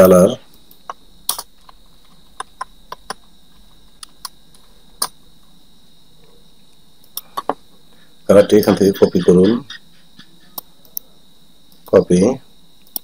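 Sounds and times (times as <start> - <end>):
faint high-pitched whine: 0.0 - 13.0.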